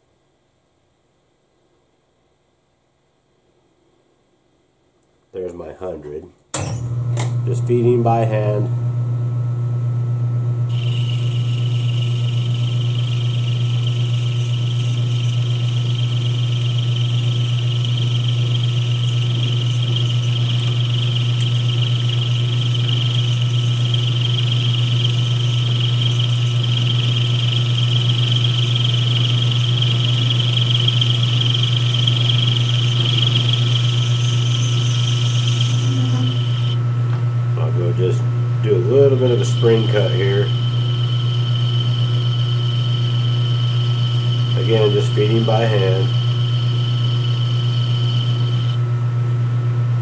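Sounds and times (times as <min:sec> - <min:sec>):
lathe motor hum: 0:10.7 - 0:36.8, 0:37.6 - 0:48.9
high-pitched cutting whine: 0:10.7 - 0:36.9, 0:37.6 - 0:48.9.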